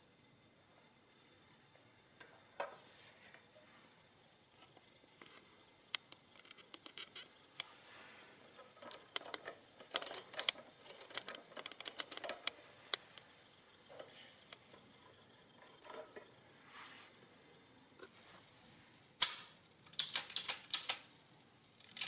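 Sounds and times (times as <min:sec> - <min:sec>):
adding machine clicks and rattles: 0:08.5 - 0:13.0, 0:21.8 - 0:22.0.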